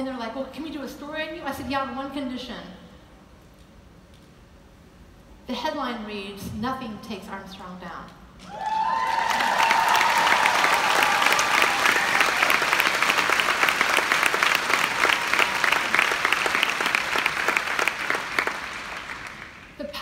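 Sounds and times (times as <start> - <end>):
audience applauding: 8.4 - 19.8.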